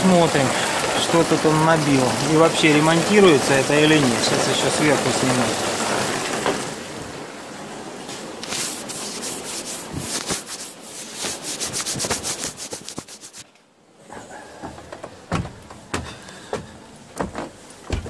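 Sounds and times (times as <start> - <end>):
knocks: 14.6 - 18.0.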